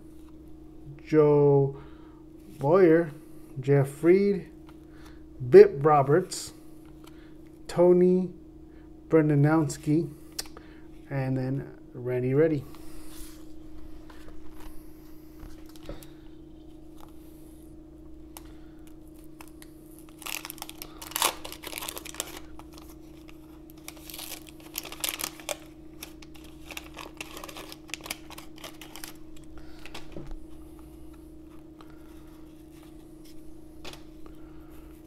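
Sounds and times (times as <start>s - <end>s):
wax paper tearing and crinkling: 19.1s - 30.0s.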